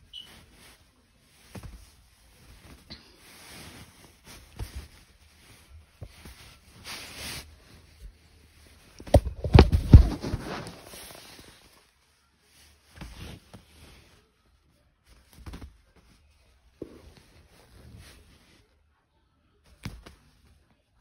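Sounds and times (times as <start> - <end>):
fabric rustling: 0.0 - 14.3.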